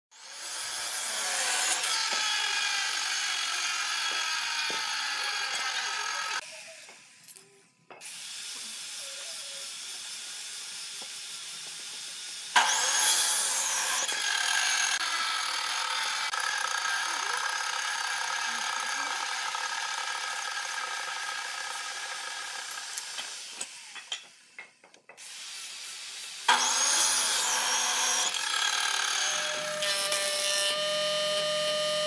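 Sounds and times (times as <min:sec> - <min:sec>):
power tool whining on hardwood: 0:00.2 - 0:07.0, 0:11.0 - 0:24.0, 0:26.5 - 0:32.0.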